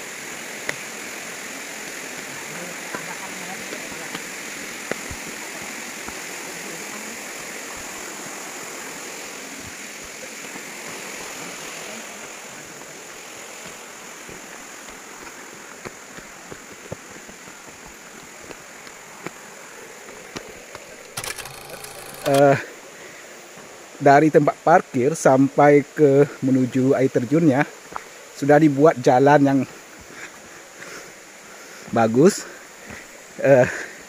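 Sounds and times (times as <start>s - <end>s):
high insect drone: 0.0s - 34.0s
faint footsteps on dirt: 2.1s - 8.5s, 9.6s - 21.1s, 32.8s - 33.8s.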